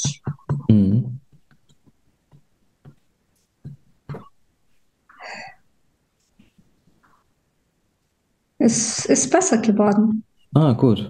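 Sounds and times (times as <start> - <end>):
fingertip taps on body: 1.3 - 4.3.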